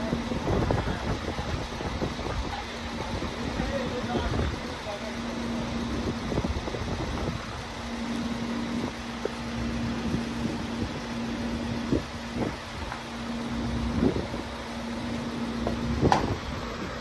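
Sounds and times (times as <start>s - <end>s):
truck engine humming: 0.0s - 17.0s
load knocking: 15.6s - 16.4s.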